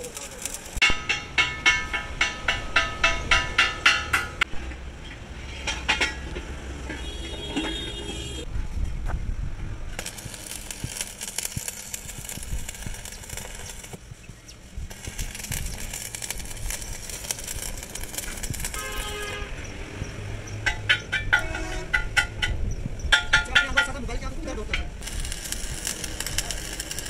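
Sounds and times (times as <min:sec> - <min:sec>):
arc welding crackle and hiss: 0:00.0 - 0:01.2, 0:09.9 - 0:20.8, 0:25.0 - 0:27.0
hammer striking steel wheel rim: 0:00.8 - 0:04.5.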